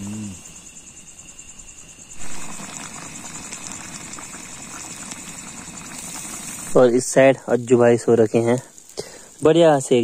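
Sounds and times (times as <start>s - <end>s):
crickets chirping: 0.0s - 10.0s
fire crackling: 0.0s - 10.0s
pot bubbling: 2.0s - 10.0s.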